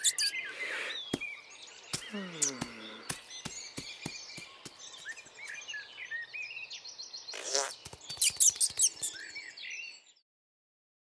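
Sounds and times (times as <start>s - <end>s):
small birds chirping: 0.0s - 10.2s
scratchy scurrying: 7.4s - 9.2s.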